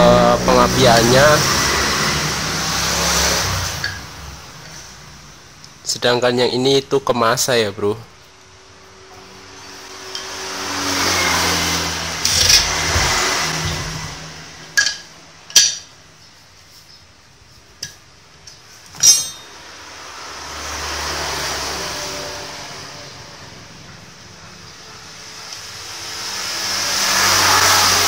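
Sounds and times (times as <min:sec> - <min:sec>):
vehicles passing by: 0:00.0 - 0:28.0
wires and small parts clinking: 0:14.7 - 0:15.9, 0:17.8 - 0:19.6.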